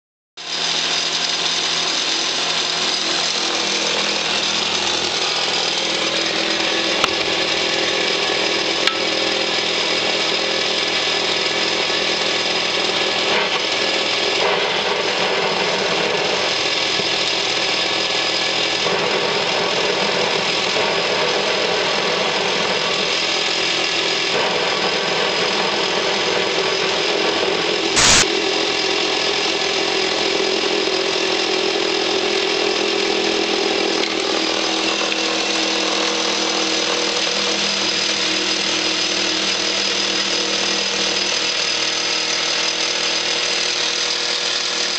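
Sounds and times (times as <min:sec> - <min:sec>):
model engine running: 0:00.4 - 0:44.9.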